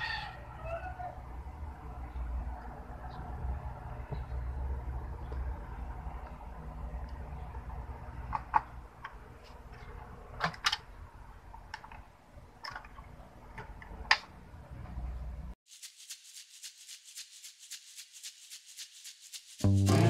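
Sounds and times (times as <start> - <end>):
background music with quick beat: 15.8 - 20.0.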